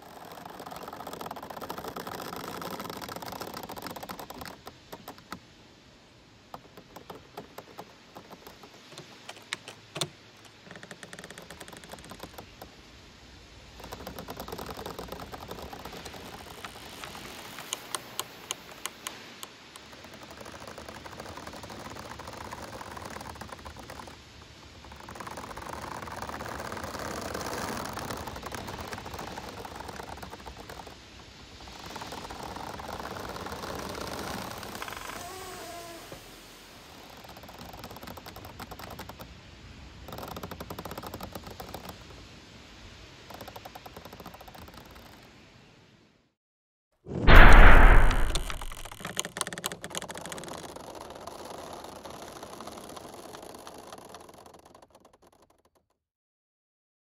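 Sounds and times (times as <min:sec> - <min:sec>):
bamboo leaves rustling: 0:00.0 - 0:05.4, 0:13.7 - 0:38.6
rapid crackling clicks: 0:00.0 - 0:05.5, 0:06.5 - 0:12.8, 0:13.7 - 0:35.2, 0:37.0 - 0:39.4, 0:40.0 - 0:42.2, 0:43.2 - 0:45.3, 0:47.2 - 0:56.0
rush of noise: 0:47.1 - 0:48.9.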